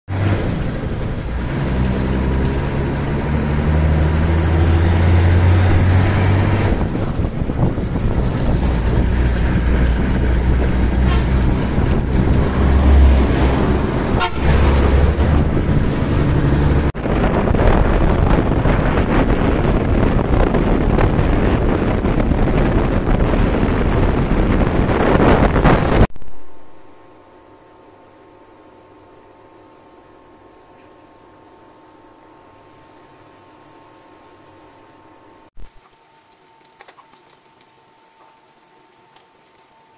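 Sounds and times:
bus engine and road noise: 0.0s - 27.0s
bus passing close: 0.1s - 17.0s.

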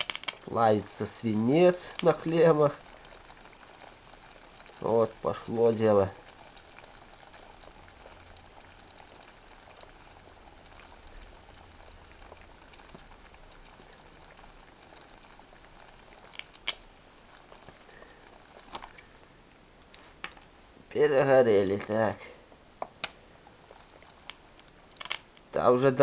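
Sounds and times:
car battery fizzing: 0.0s - 19.3s.

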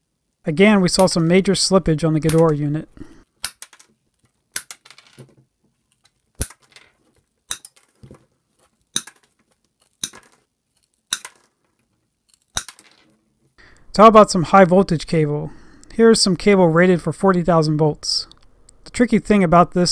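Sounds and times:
pliers snapping through wire: 6.4s - 6.7s, 7.5s - 7.8s, 8.9s - 11.5s, 12.3s - 12.8s.

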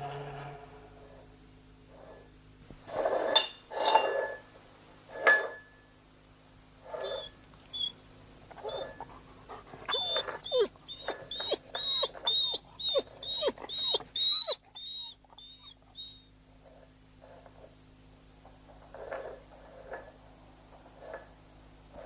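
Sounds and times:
dog whimpering and whining: 6.9s - 16.3s.

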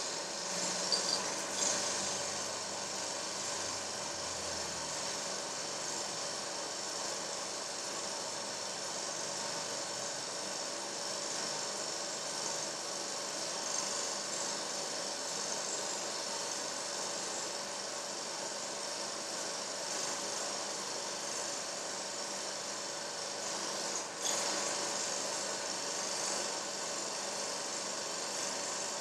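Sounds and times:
steady hum with hiss: 0.0s - 29.0s.

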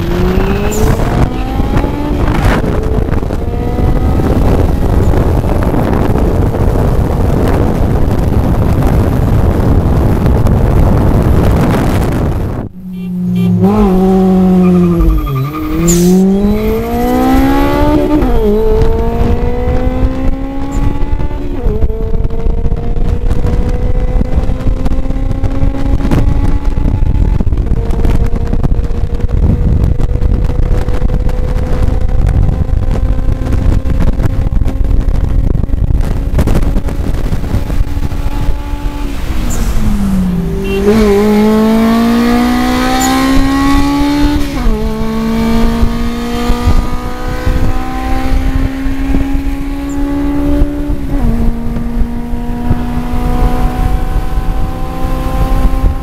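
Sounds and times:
car engine accelerating: 0.0s - 56.0s
road and wind roar: 0.0s - 56.0s.

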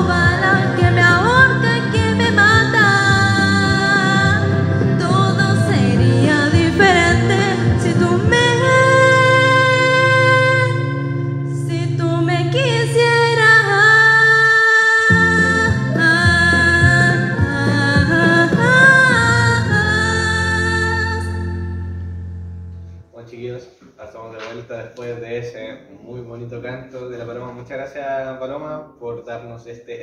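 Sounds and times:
woman singing into a microphone: 0.0s - 22.2s
karaoke backing track: 0.0s - 23.1s.

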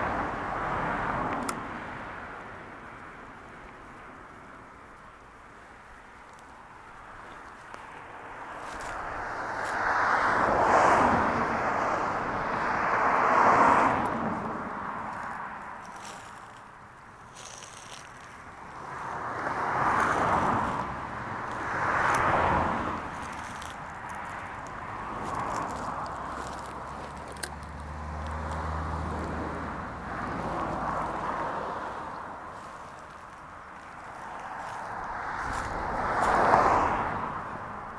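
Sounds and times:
cars passing: 0.0s - 37.9s
distant engine hum: 0.0s - 37.9s
stream rushing: 6.6s - 37.9s.

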